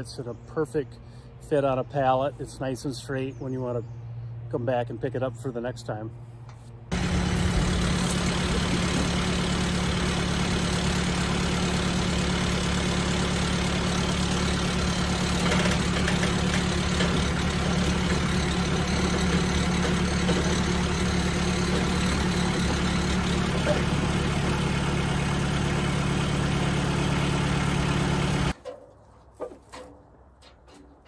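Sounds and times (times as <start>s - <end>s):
tractor engine idling: 6.9s - 28.6s.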